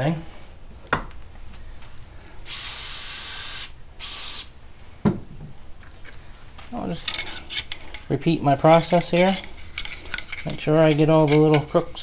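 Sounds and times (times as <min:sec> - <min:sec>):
aerosol spray can hissing: 0:02.5 - 0:04.5.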